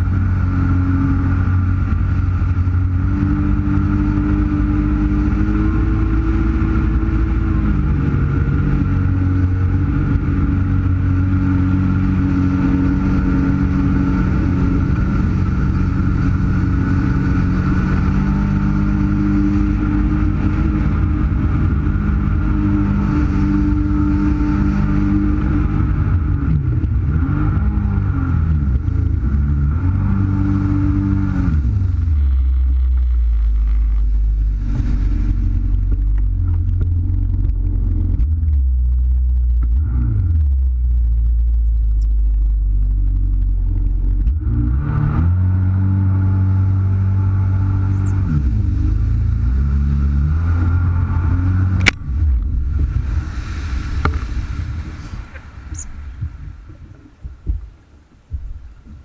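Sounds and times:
jet ski engine running: 0.0 - 59.0.

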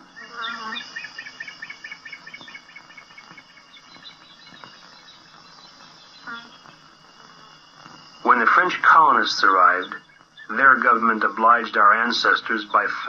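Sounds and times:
high animal chirps: 0.0 - 13.0
steady high hiss: 0.0 - 13.0
low animal call: 6.2 - 6.7.

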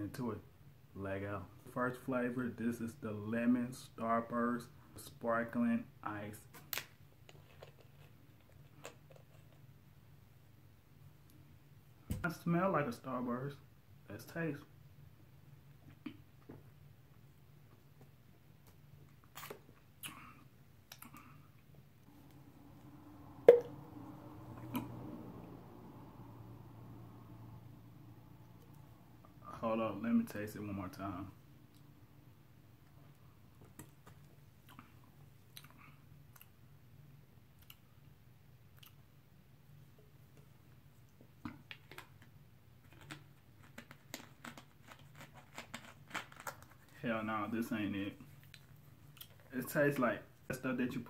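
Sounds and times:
quiet room hum: 0.0 - 51.0
person drinking and swallowing: 23.5 - 23.7.

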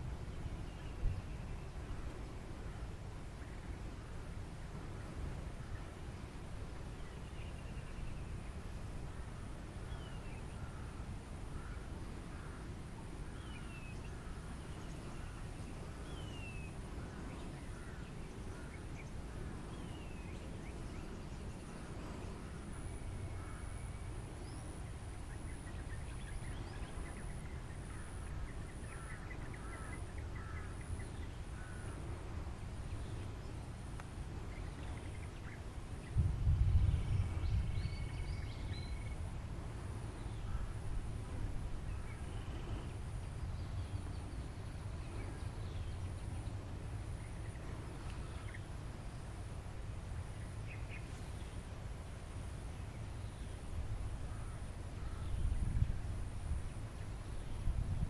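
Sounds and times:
birds calling: 7.0 - 36.2.

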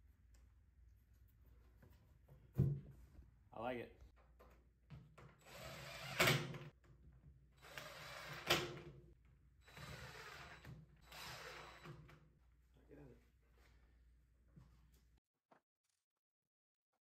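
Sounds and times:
cordless drill driving screws: 5.4 - 6.6, 7.6 - 8.8, 9.6 - 12.0.

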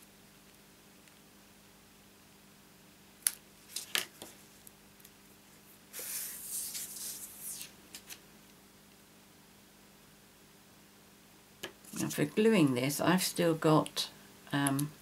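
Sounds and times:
paper rustling: 3.7 - 4.4, 6.0 - 8.2.

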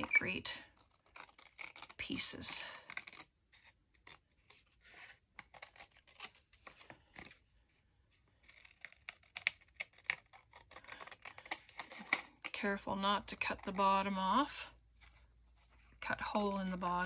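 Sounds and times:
scissors cutting cardstock: 16.1 - 17.0.

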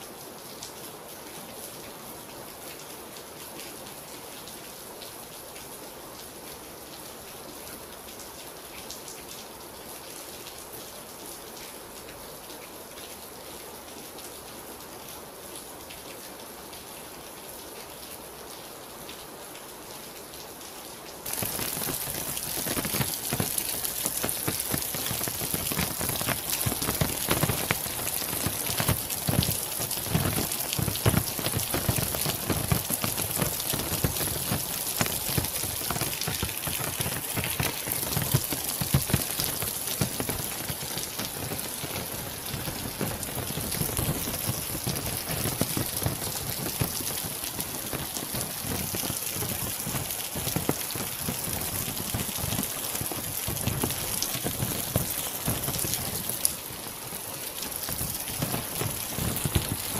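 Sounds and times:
rain falling steadily: 0.0 - 59.9
raindrops striking a surface: 0.0 - 59.9.

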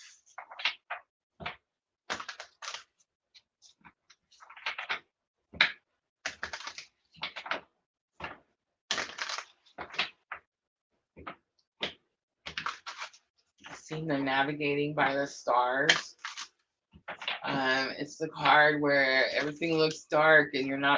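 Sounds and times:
cards being shuffled: 8.2 - 10.2, 11.8 - 13.8.

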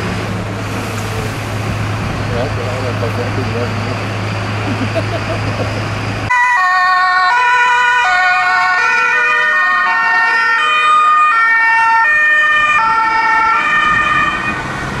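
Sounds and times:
low engine hum: 0.0 - 6.3
two-tone emergency sirens: 6.3 - 14.8.

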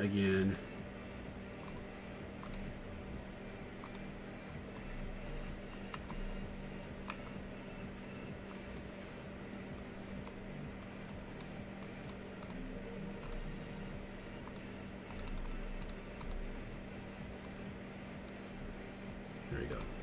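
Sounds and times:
low electrical hum: 0.0 - 20.0
keyboard keys clicking: 14.4 - 16.4.

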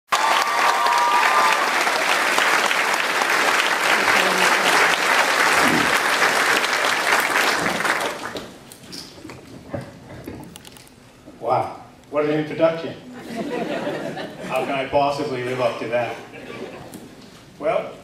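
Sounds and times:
audience applauding: 0.1 - 8.7.

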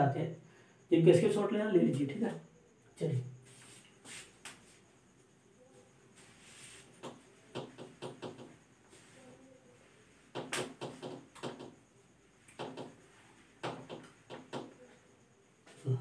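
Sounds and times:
whiteboard being wiped: 3.4 - 4.9, 6.2 - 7.2.

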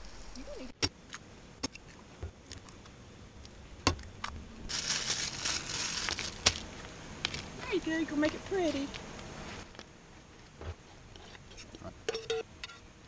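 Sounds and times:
crisp bacon rustling: 4.7 - 6.7.

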